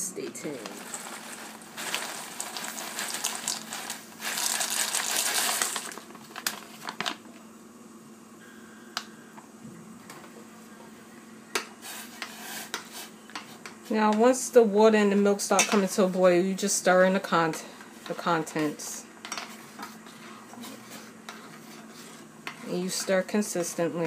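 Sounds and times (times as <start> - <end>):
dry pasta poured into saucepan: 0.7 - 6.0.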